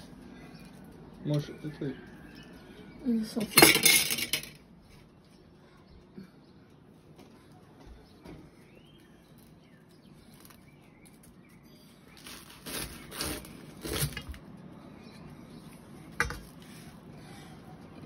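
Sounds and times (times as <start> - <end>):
knife crunching crisp crust: 12.1 - 14.6.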